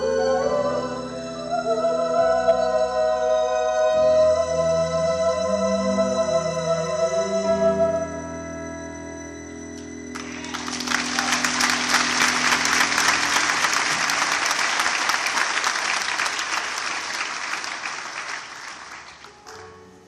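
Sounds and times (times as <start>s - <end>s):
music held notes: 0.0s - 20.0s
audience applauding: 10.1s - 19.8s.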